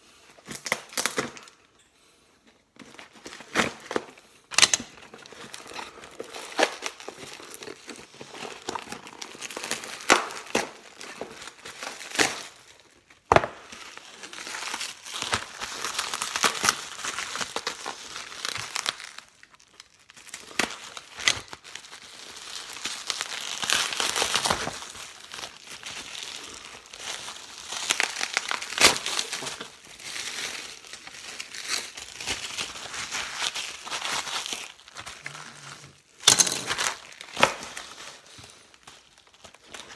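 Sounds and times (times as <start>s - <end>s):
bubble wrap crinkling: 0.1s - 1.7s, 2.7s - 39.9s
paper parcel tearing: 3.0s - 12.6s, 20.2s - 39.9s.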